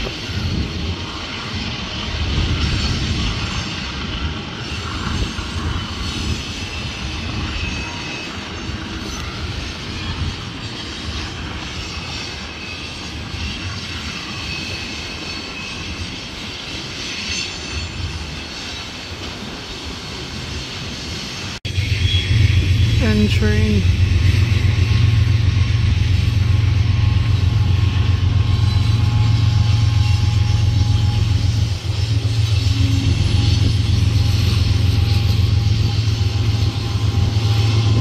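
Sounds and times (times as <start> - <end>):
train wheels rumbling on rail: 0.0 - 38.0
low rumble: 21.7 - 38.0
person speaking: 23.0 - 23.9.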